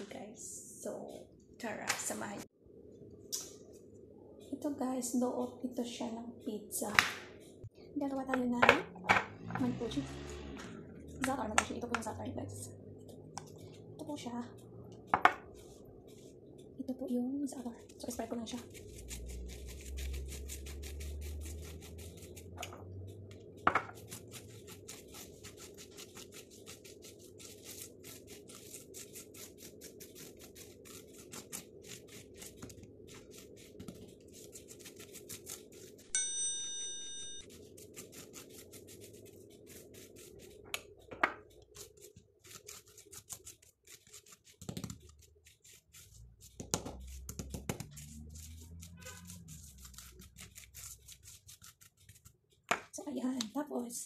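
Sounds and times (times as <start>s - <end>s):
bell-like ding: 36.1s - 37.4s
metal spoon scraping dough: 41.7s - 52.3s.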